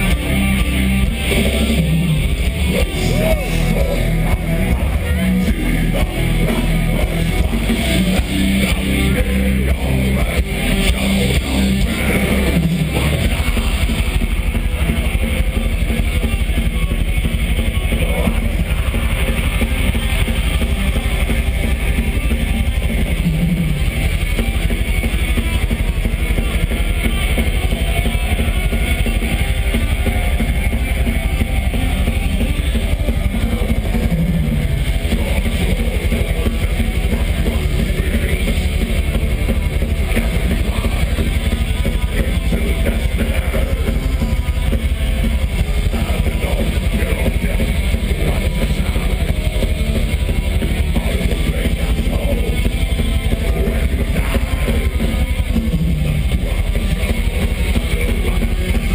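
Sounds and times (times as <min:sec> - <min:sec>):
metal band playing live: 0:00.0 - 0:58.9
rapid drumming: 0:00.0 - 0:58.9.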